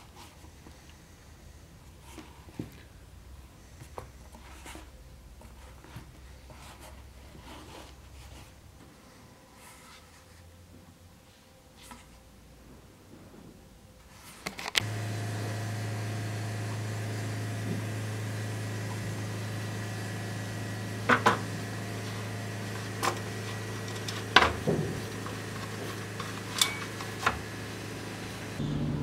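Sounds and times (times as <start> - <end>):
steady machine hum: 14.8 - 29.0.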